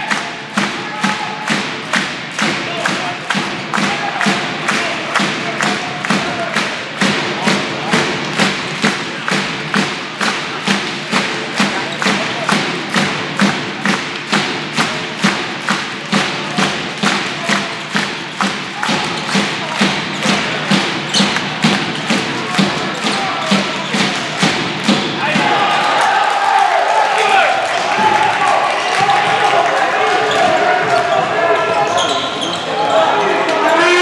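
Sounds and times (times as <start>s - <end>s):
crowd beating rhythmic thuds: 0.0s - 34.0s
crowd noise: 0.0s - 34.0s.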